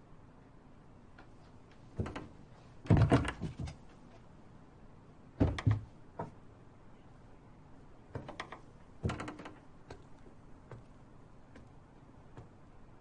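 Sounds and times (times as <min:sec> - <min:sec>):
door knocking and rattling: 0:02.0 - 0:02.3, 0:02.9 - 0:03.8, 0:05.4 - 0:05.9, 0:08.2 - 0:09.6.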